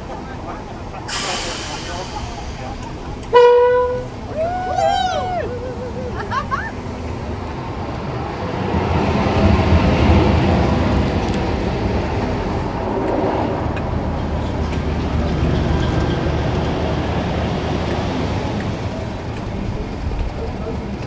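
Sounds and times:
diesel locomotive engine running: 0.0s - 21.0s.

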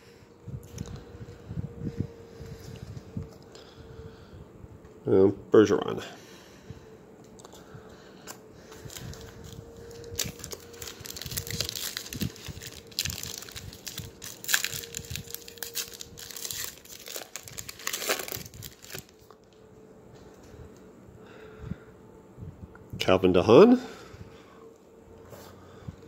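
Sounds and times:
foil wrapper tearing and crinkling: 8.8s - 19.3s.

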